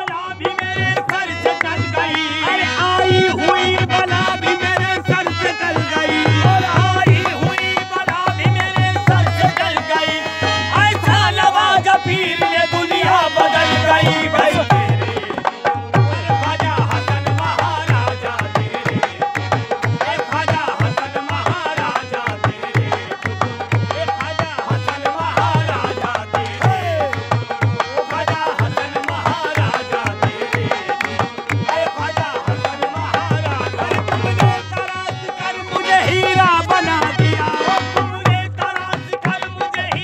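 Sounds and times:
men singing devotional song: 0.0 - 40.0
high voice singing: 1.6 - 7.9.

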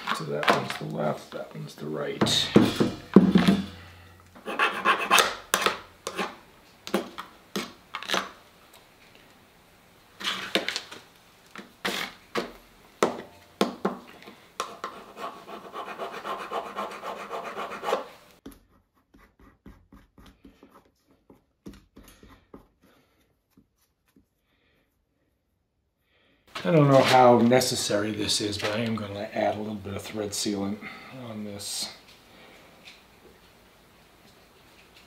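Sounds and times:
hand tool scraping metal fitting: 2.2 - 6.4.

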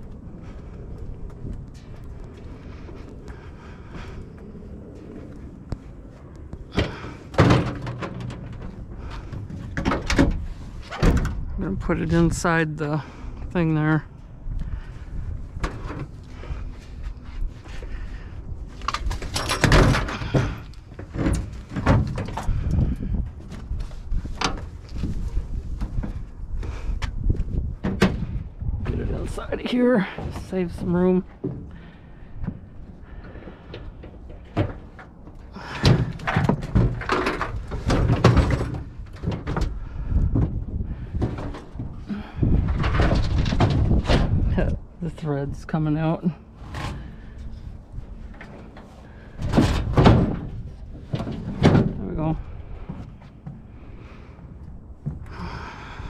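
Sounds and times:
items clunking and rattling: 6.6 - 11.5, 18.7 - 26.3, 30.0 - 44.7, 46.4 - 55.6.

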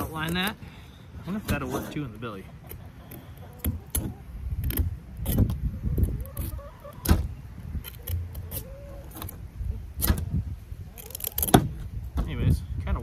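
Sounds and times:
knife cutting through scaly skin: 11.0 - 11.7.

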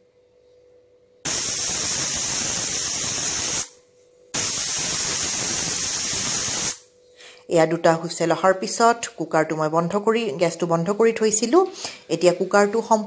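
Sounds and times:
pressure cooker whistling: 1.3 - 3.7, 4.4 - 6.8.

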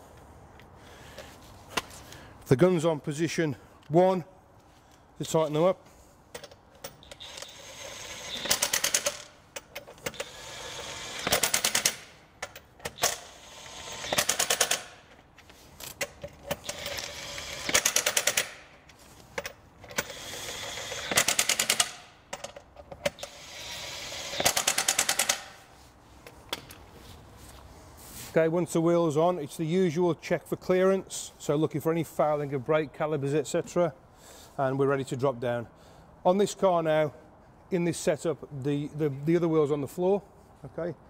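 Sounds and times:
impact wrench whirring and hammering: 6.4 - 15.2, 15.9 - 25.7.

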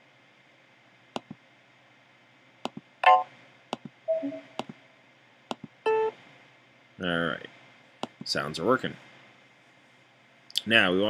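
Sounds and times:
short computer alert sounds: 4.1 - 4.6.

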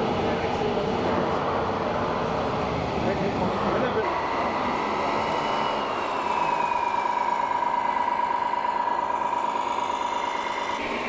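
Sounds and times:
small electric motors whining: 0.2 - 11.0
higher whine falling in pitch: 4.0 - 11.0.

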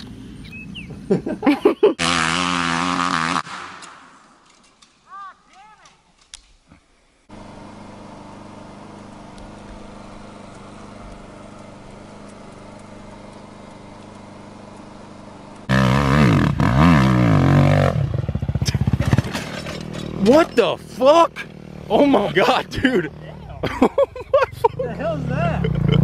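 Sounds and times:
dirt bike revving hard: 2.0 - 3.5, 15.7 - 23.3, 24.6 - 26.0
dirt bike engine idling: 7.3 - 26.0.

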